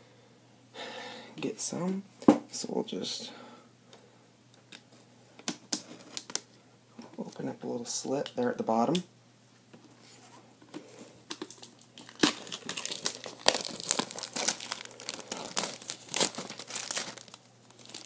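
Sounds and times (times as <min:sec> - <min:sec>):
plastic shrink wrap crinkling: 0:11.3 - 0:18.0.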